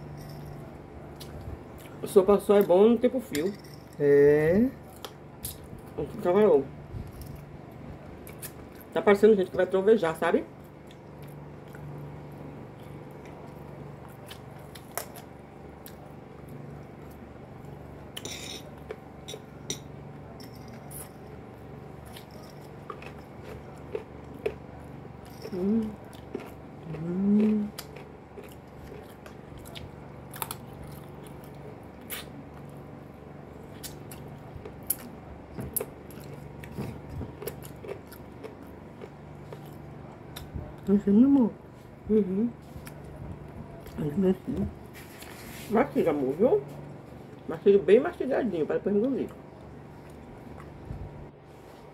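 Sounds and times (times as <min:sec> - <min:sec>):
steady low hum: 0:00.0 - 0:51.9
chewing and mouth noises: 0:01.0 - 0:02.0, 0:10.6 - 0:17.2, 0:21.9 - 0:32.8, 0:33.6 - 0:41.5, 0:49.0 - 0:51.1
person humming mm: 0:25.5 - 0:26.0, 0:26.8 - 0:27.8, 0:42.1 - 0:42.6.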